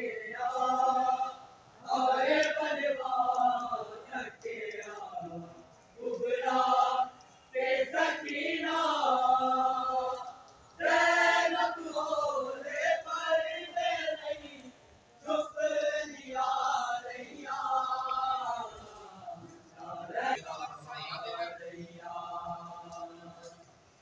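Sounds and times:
person chanting: 0.0 - 23.6.

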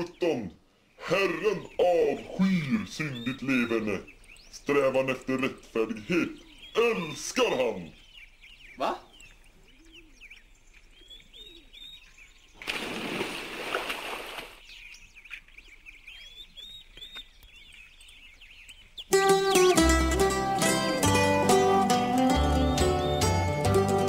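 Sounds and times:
small birds chirping: 0.0 - 24.0
plucked-string music: 19.1 - 24.0.

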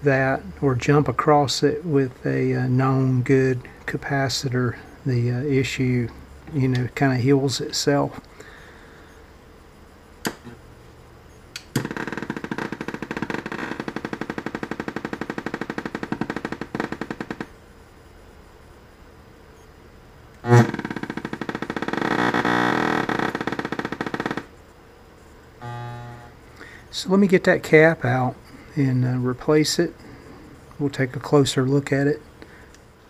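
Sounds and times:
sharp clicks: 10.2 - 10.6, 11.5 - 17.5.

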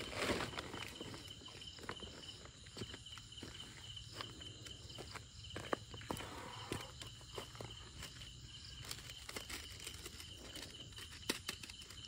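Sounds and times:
crinkling rustle: 0.0 - 1.3, 7.8 - 12.0
crickets chirping: 0.0 - 12.0.

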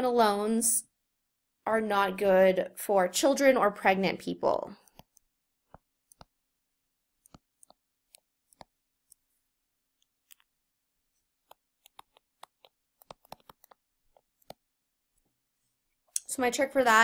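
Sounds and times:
stylus clicking on drawing tablet: 4.8 - 15.4.

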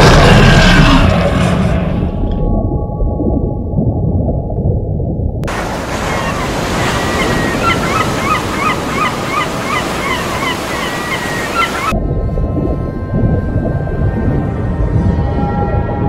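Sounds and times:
low rumble: 0.0 - 5.9, 11.9 - 16.0
surf: 5.4 - 12.0
wind: 5.4 - 16.0
birds calling: 5.8 - 11.9.

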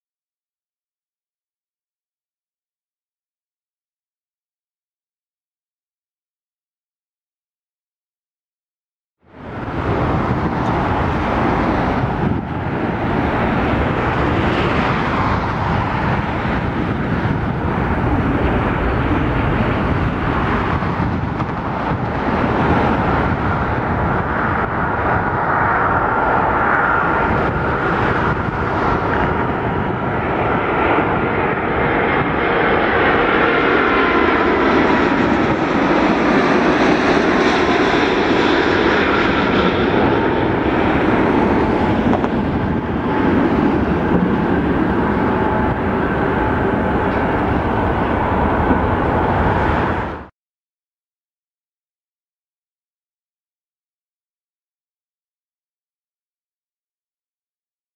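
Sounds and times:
jet engine whine falling in pitch: 9.3 - 50.3
jet engines rumbling: 9.3 - 50.3.

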